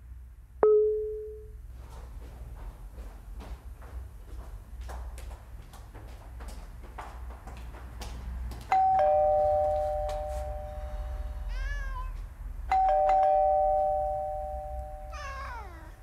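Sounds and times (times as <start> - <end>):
two-tone doorbell: 0.6 - 1.5, 8.7 - 11.3, 12.7 - 15.3
cat meowing: 11.5 - 12.3, 15.0 - 16.0.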